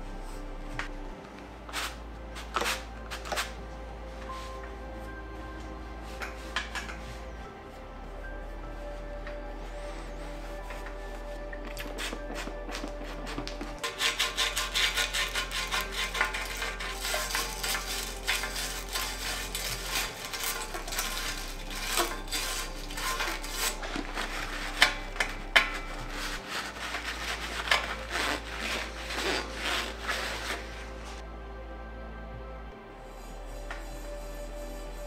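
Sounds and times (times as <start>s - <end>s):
soft background music: 0.0s - 35.0s
hand scrubbing bicycle parts: 1.7s - 3.6s, 6.0s - 7.5s, 9.5s - 31.2s.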